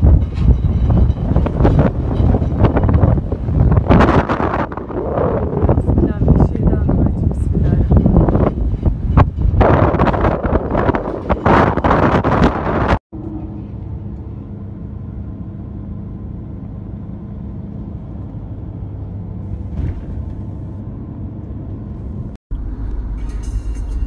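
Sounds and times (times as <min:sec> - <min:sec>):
wind buffeting microphone: 0:00.0 - 0:13.0
car interior rumble: 0:19.4 - 0:20.8
music: 0:22.6 - 0:24.0.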